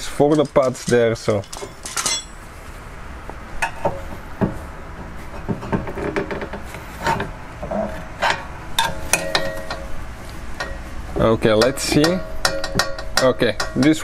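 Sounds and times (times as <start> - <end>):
sharp metallic clicks and knocks: 8.2 - 10.0, 11.4 - 14.0.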